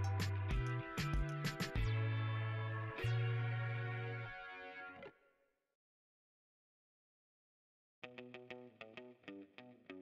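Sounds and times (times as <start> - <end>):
held chords over deep bass: 0.0 - 4.4.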